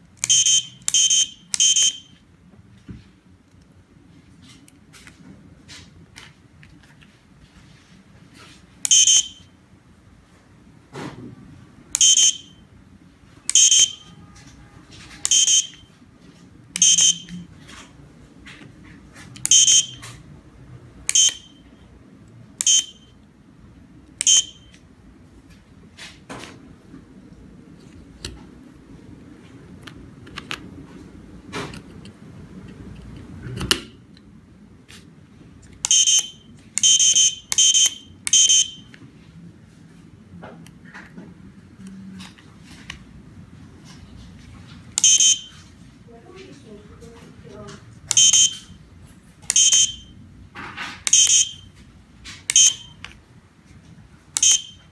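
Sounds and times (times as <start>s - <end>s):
short electronic beeps: 0.2s - 2.2s, 8.9s - 9.5s, 12.0s - 12.6s, 13.5s - 14.3s, 15.2s - 15.9s, 16.8s - 17.4s, 19.5s - 20.0s, 21.1s - 21.7s, 22.6s - 23.2s, 24.2s - 24.7s, 35.9s - 38.9s, 45.0s - 45.6s, 48.1s - 48.8s, 49.5s - 50.2s, 51.1s - 51.7s, 52.5s - 53.0s, 54.4s - 54.9s.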